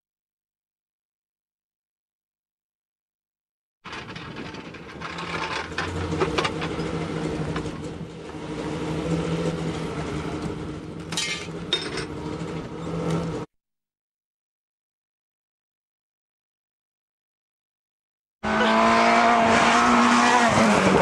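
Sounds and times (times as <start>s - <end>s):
engine hum: 3.9s - 13.5s, 18.4s - 21.0s.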